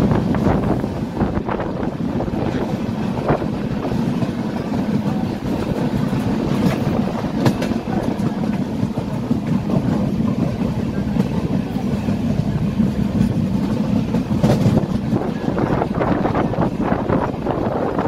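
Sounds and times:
train wheels rumbling on rails: 0.0s - 18.0s.

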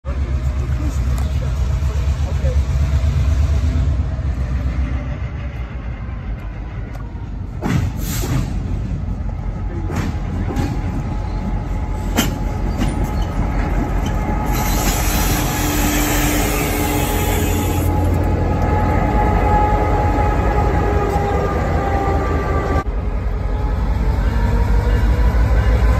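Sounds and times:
diesel locomotive engine running: 0.0s - 25.9s
wheels squealing on rails: 10.3s - 22.4s.

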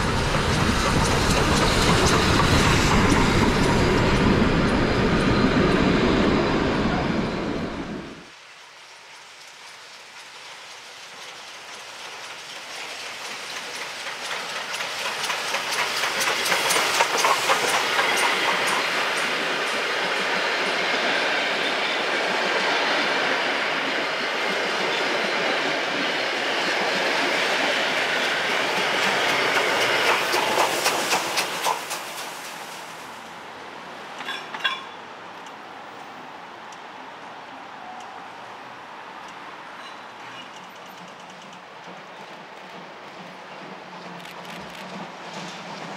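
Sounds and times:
steam train passing: 0.0s - 45.9s
wheels clicking over rail joints: 8.9s - 20.7s, 26.8s - 32.6s, 34.1s - 35.6s, 39.2s - 45.9s.

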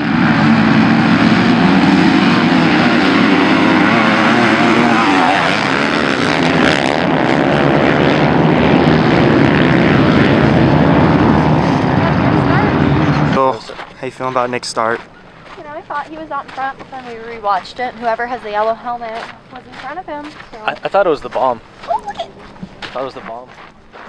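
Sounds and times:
dirt bike engines racing: 0.0s - 24.0s
dirt bike passing close: 0.0s - 24.0s.

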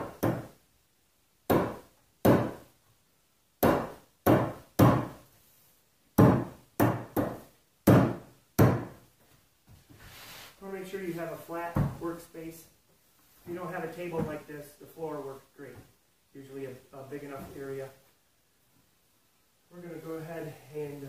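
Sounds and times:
rubber mallet pounding wood: 0.0s - 0.6s, 1.5s - 2.7s, 3.6s - 5.2s, 6.2s - 9.0s.

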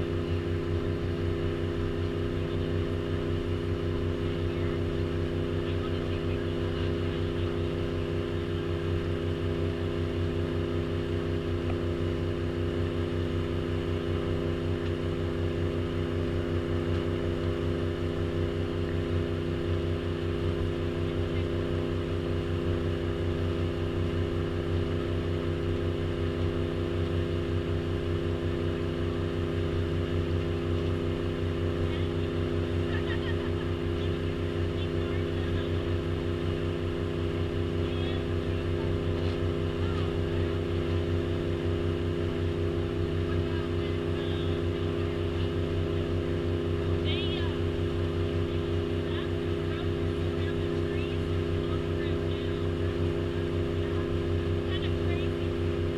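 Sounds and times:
boat engine droning: 0.0s - 55.9s.

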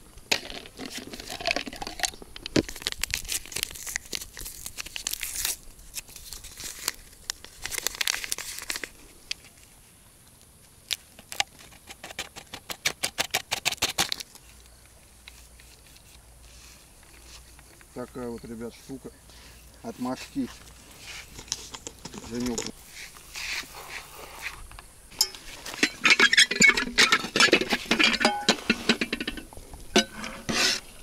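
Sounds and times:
sachet tearing and crinkling: 1.0s - 9.5s.

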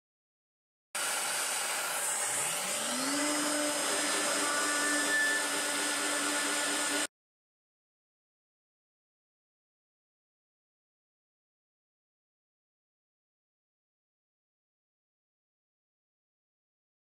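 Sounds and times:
spindle whirring while milling metal: 1.0s - 7.1s.

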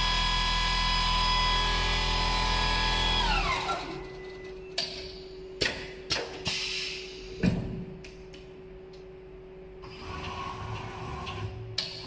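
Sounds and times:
steady hum: 4.0s - 12.0s.

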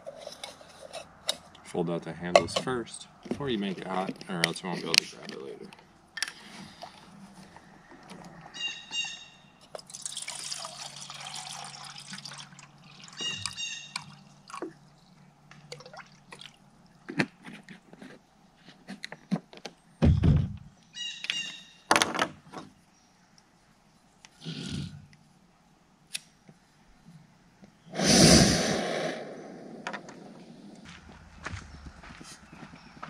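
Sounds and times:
water poured into metal pot: 9.9s - 14.6s
heavy thump: 20.0s - 20.6s.

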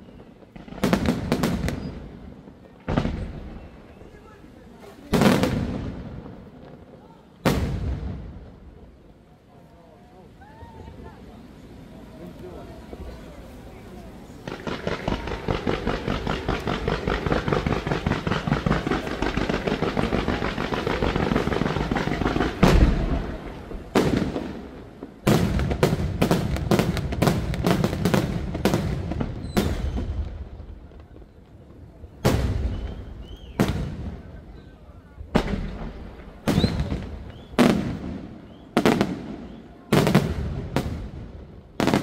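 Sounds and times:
rapid small firework bangs: 0.0s - 8.8s, 14.2s - 42.0s
loud firework shell bursts: 14.4s - 30.4s.

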